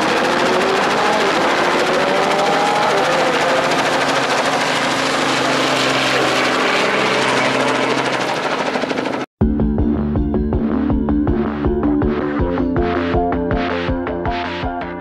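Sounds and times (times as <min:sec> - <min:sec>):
helicopter flying overhead: 0:00.0 - 0:09.3.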